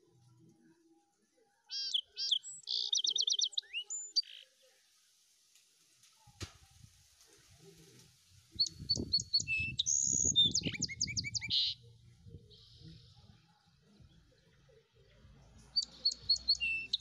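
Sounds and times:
bird chirping and trilling: 0:01.7 - 0:04.5, 0:08.6 - 0:11.9, 0:15.7 - 0:17.0.

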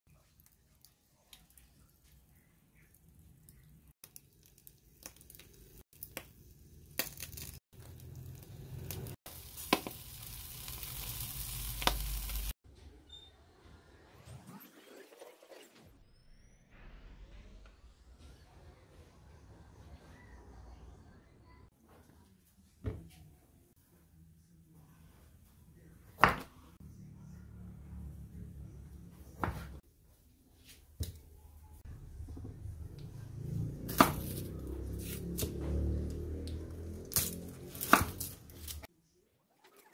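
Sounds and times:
fish sizzling on a grill: 0:04.2 - 0:12.6
sharp pops and crackles: 0:10.9 - 0:12.5
knife striking wooden chopping board: 0:33.9 - 0:34.4.

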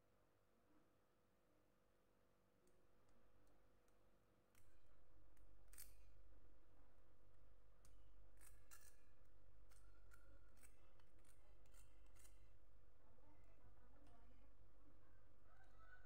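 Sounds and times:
cheese scraping on metal grater: 0:05.7 - 0:06.1, 0:08.3 - 0:12.6.

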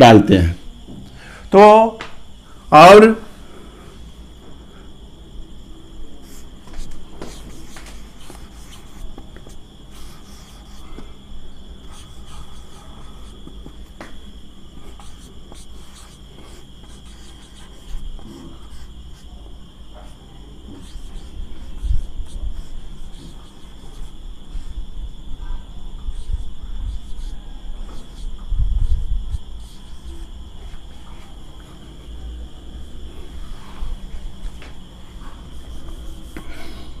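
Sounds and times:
marker squeaking on whiteboard: 0:06.2 - 0:11.1, 0:14.7 - 0:19.2, 0:20.0 - 0:24.7, 0:26.0 - 0:31.2.

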